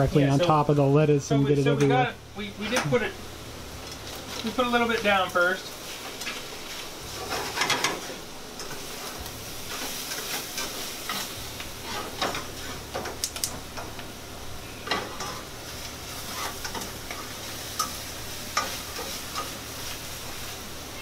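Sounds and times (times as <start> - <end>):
chicken sizzling in a pan: 2.4 - 21.0
utensil clinking and scraping pan: 7.2 - 8.9, 16.1 - 19.6.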